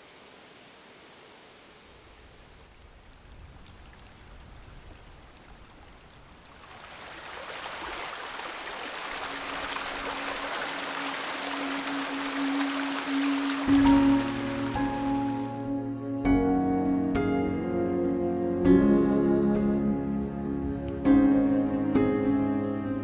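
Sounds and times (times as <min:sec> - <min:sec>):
stream running water: 0:00.0 - 0:15.7.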